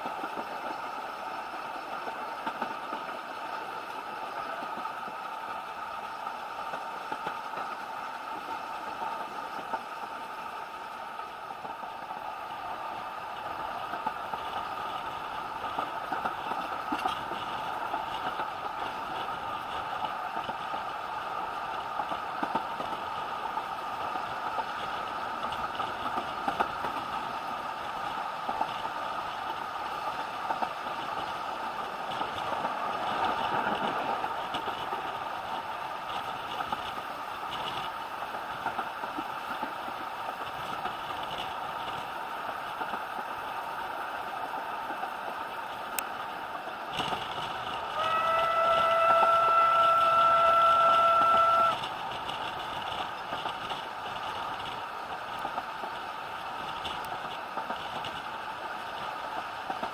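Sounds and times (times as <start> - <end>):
sharp track clicks: 0.0 - 43.3
train rumbling on track: 0.0 - 59.9.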